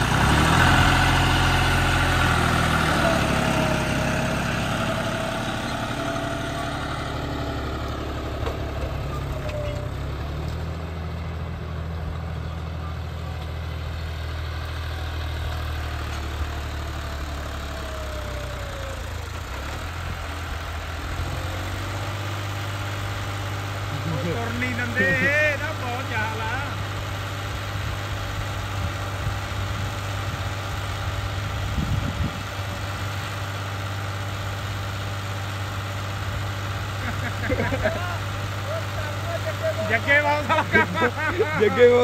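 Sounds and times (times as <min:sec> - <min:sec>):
tractor diesel engine running: 0:00.0 - 0:42.0.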